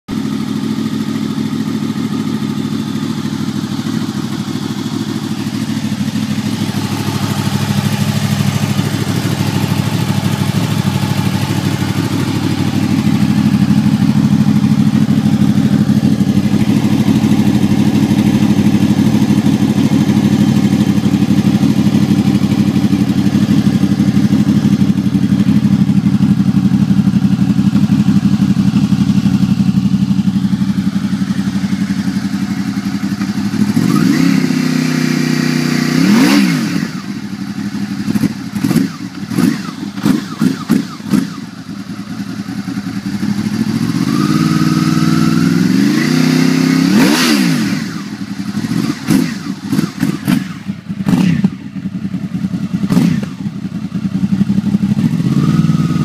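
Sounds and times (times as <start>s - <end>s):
motorcycle engine idling: 0.1s - 56.0s.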